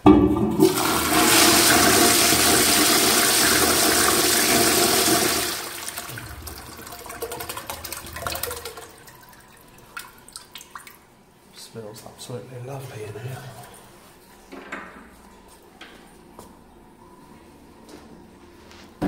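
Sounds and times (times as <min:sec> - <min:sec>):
toilet flushing: 0:00.0 - 0:11.0.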